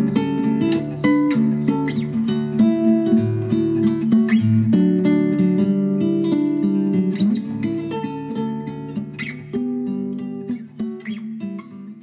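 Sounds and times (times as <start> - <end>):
acoustic guitar music: 0.0 - 12.0.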